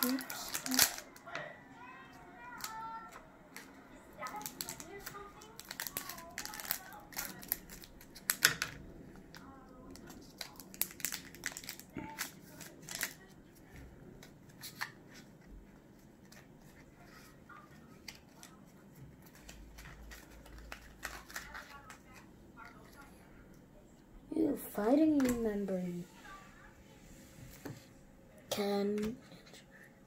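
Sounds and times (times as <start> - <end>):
foil crinkling: 0.0 - 1.2, 3.6 - 8.6, 9.4 - 13.4, 19.2 - 22.2
scissors snipping foil: 0.0 - 1.2, 4.3 - 8.6
cards rustling: 0.0 - 1.3, 2.4 - 23.0, 25.0 - 25.7.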